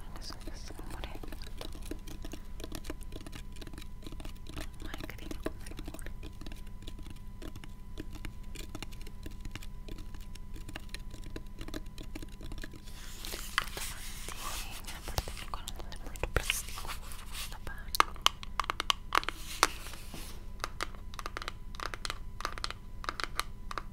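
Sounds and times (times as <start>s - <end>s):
faint electrical hum: 0.0s - 23.9s
fingers tapping on plastic: 0.2s - 12.8s, 17.9s - 19.4s, 20.6s - 23.9s.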